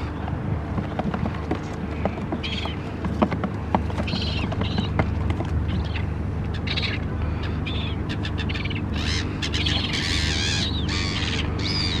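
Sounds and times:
gulls calling: 0.0s - 12.0s
low drone: 0.0s - 12.0s.

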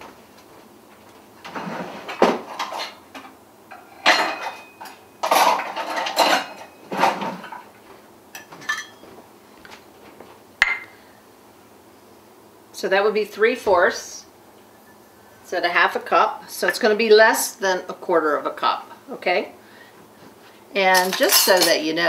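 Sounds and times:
kitchen utensils clattering: 1.5s - 7.8s, 8.4s - 9.1s, 20.9s - 22.0s.

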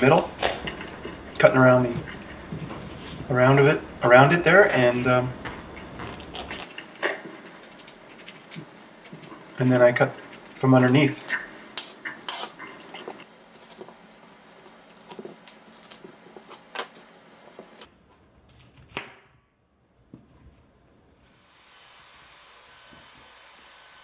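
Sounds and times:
faint steady hiss: 20.5s - 24.0s.

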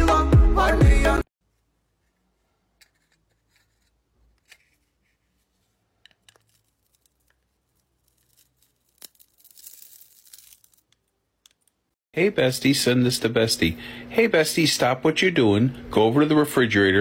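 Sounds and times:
faint taps and scrapes: 1.5s - 7.4s.

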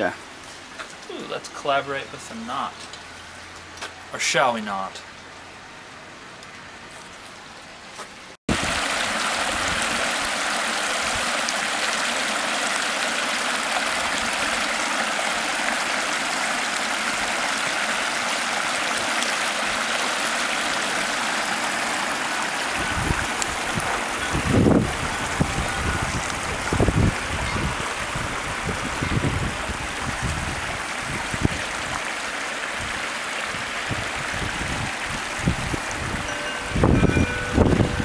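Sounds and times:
stream water rushing: 8.5s - 38.0s.

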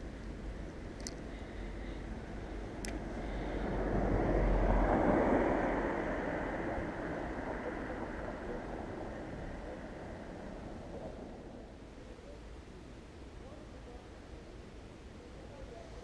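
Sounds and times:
car driving past: 3.0s - 11.7s.

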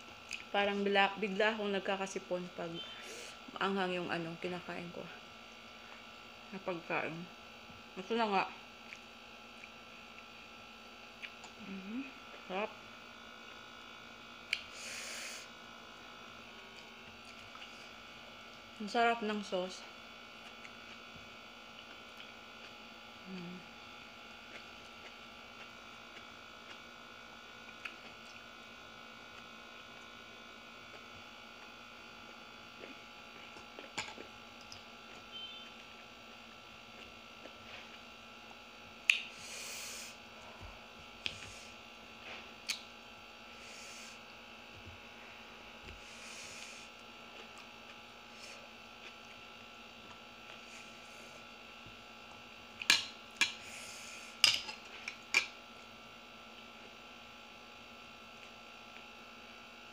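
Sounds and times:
electrical hum: 0.0s - 59.9s
soft eating clicks: 32.8s - 35.2s, 42.6s - 42.9s.

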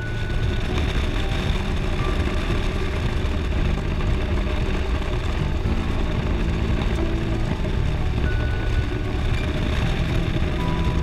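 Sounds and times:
motorcycle engine running: 0.0s - 11.0s
wind rush on microphone: 0.0s - 11.0s.

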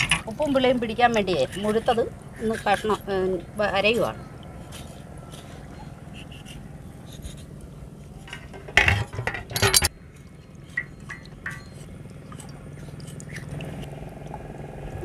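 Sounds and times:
knife and pots clinking: 8.3s - 9.9s, 10.7s - 12.5s.

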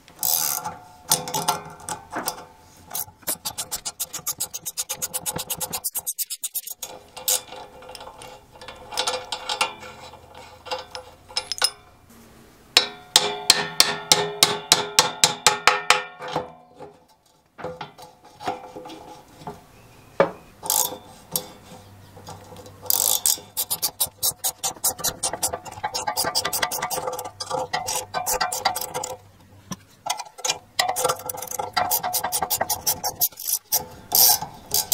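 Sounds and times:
ratchet wrench clicking: 0.2s - 1.5s, 2.9s - 7.5s, 20.7s - 21.5s, 22.9s - 29.2s, 30.4s - 34.9s
steel parts knocking and clinking: 0.2s - 11.9s, 20.2s - 34.9s.

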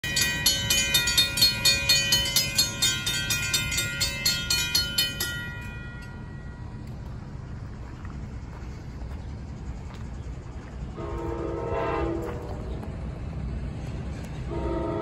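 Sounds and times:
crossing warning bell ringing: 0.0s - 7.4s
low background rumble: 1.9s - 15.0s.

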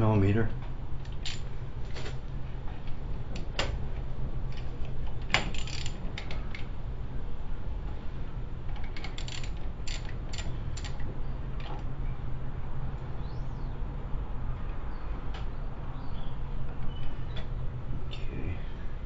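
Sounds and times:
steady low hum: 0.0s - 19.0s
ratchet clicking on bolts: 1.2s - 1.5s, 5.3s - 6.4s, 8.8s - 11.0s.

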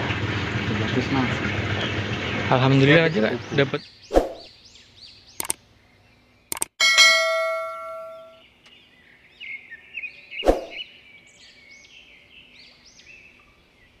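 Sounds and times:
birds chirping: 1.6s - 14.0s
bell-like chime: 6.8s - 8.4s.

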